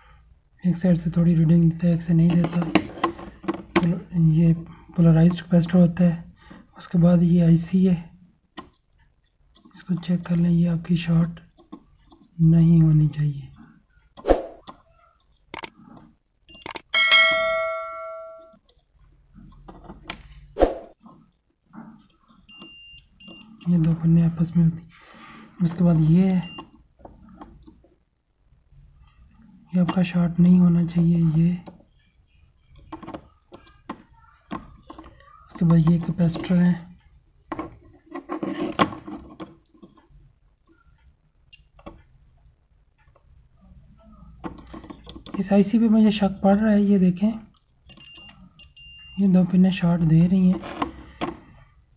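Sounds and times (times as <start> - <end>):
test probes clicking and rubbing: 8.5 - 9.8
bell-like ding: 17.0 - 18.6.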